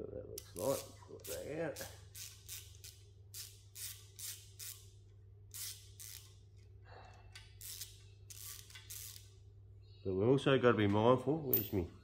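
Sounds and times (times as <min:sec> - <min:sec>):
steady low hum: 0:00.0 - 0:12.0
raspy scrapes of screw turning: 0:05.5 - 0:06.4, 0:07.3 - 0:09.3.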